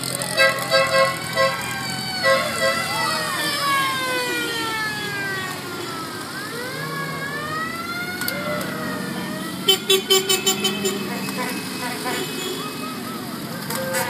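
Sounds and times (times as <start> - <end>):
street traffic: 0.0 - 14.0
car horn toots: 0.3 - 1.6, 2.2 - 2.9, 9.7 - 12.7
siren wailing: 0.6 - 14.0.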